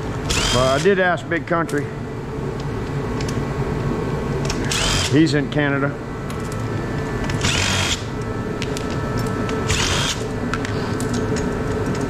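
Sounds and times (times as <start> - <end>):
steady hum: 0.0 - 12.0
power drill spinning: 0.3 - 0.8, 4.7 - 5.1, 7.4 - 8.0, 9.7 - 10.2.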